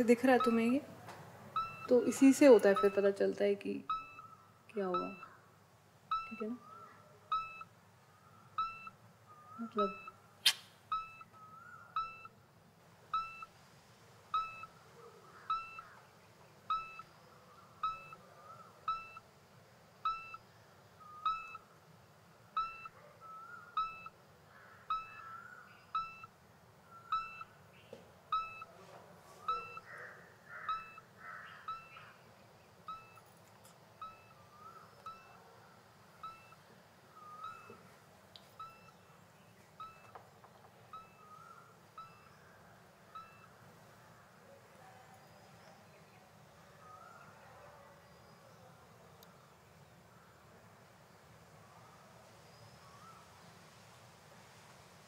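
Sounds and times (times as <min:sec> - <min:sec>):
faint chirps: 0:06.1 - 0:12.4, 0:14.3 - 0:19.3, 0:20.0 - 0:21.8, 0:22.4 - 0:53.8.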